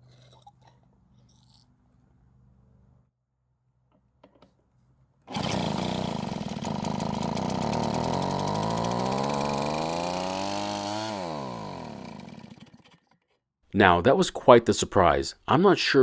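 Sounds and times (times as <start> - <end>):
backpack blower engine revving: 5.3 - 13.2.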